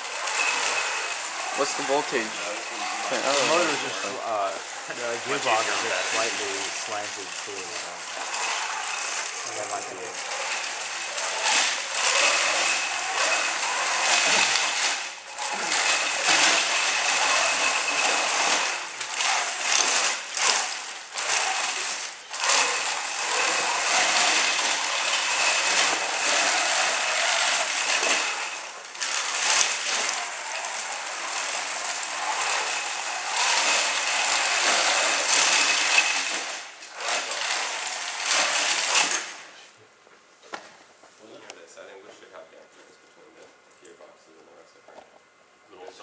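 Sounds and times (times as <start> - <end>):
robot drive motors whining: 0.0 - 39.6
mechanical rattle: 6.2 - 39.6.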